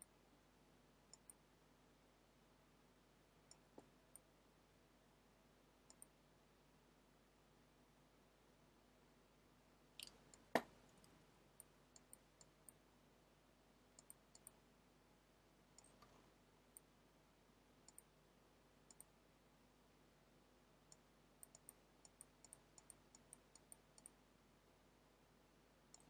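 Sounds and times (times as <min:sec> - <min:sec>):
computer mouse clicks: 0:01.1 - 0:01.4, 0:03.5 - 0:04.3, 0:05.9 - 0:06.2, 0:10.0 - 0:12.8, 0:14.0 - 0:14.6, 0:15.8 - 0:16.9, 0:17.8 - 0:18.1, 0:18.9 - 0:19.1, 0:20.9 - 0:24.2.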